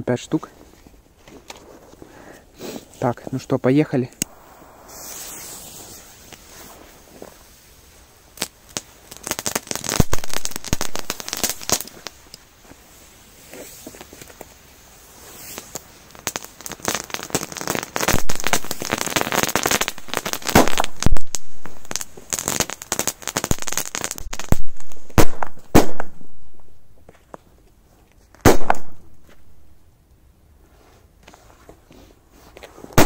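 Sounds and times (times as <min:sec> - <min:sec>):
fuses crackling: 0:04.0 - 0:12.8
firecracker bangs: 0:04.2 - 0:07.4, 0:20.4 - 0:21.8, 0:24.4 - 0:26.7, 0:28.4 - 0:29.1.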